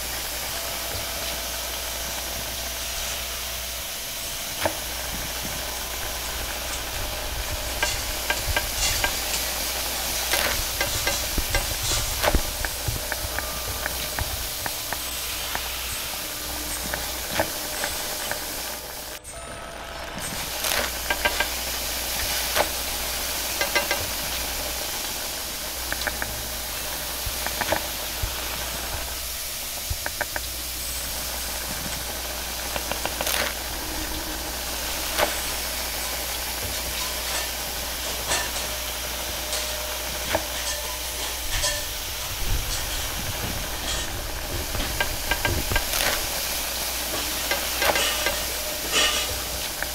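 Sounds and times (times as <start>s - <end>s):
food sizzling in a wok: 0.0s - 19.4s, 20.1s - 49.9s
gas burner hissing: 0.0s - 49.9s
metal spatula scraping wok: 33.4s - 49.9s.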